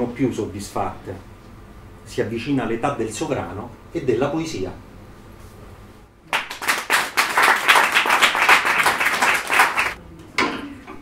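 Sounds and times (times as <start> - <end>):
audience applauding: 6.3 - 10.0.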